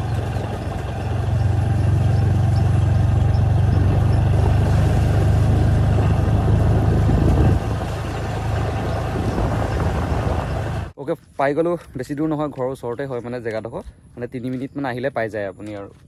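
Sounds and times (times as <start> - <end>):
motor scooter engine hum: 0.0 - 10.9
rushing air: 2.4 - 11.0.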